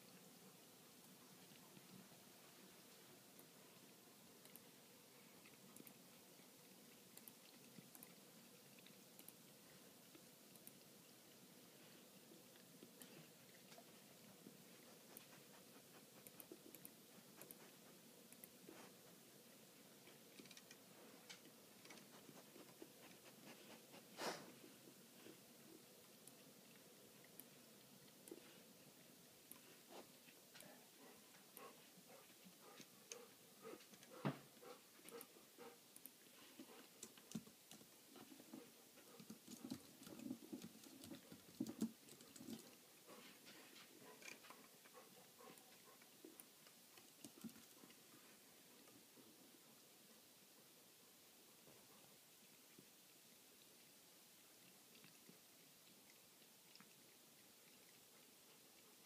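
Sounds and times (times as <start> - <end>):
cat lapping water: 52.3 - 59.0.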